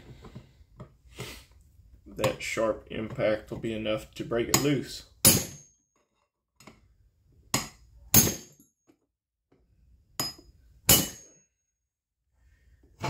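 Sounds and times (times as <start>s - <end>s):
hammer striking metal rod: 4.5s - 5.7s, 7.5s - 8.6s, 10.2s - 11.4s.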